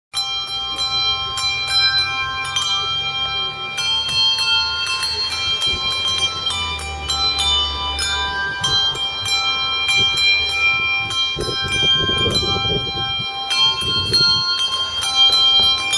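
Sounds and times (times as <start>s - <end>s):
handbells ringing a tune: 0.1s - 15.9s.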